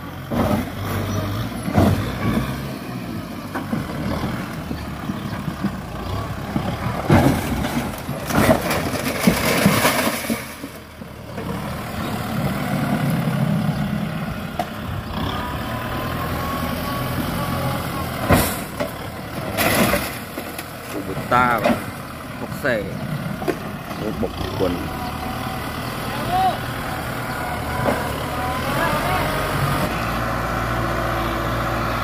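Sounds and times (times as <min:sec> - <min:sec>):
tractor diesel engine running: 0:00.0 - 0:32.0
breaking concrete and metal crashing: 0:07.3 - 0:10.8.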